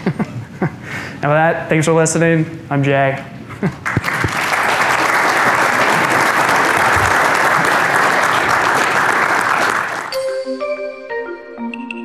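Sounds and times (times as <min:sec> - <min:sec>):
large audience applauding: 0:03.8 - 0:10.2.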